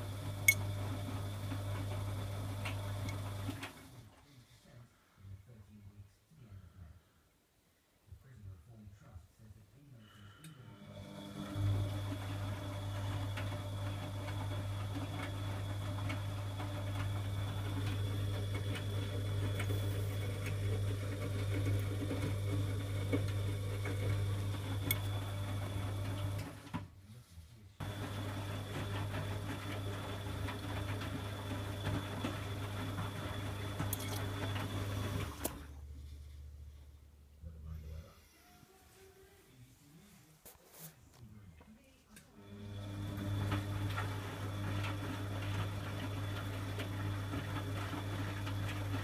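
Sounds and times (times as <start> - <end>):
washing machine motor hum: 0.0 - 4.1, 10.6 - 26.8, 27.8 - 36.1, 42.4 - 49.0.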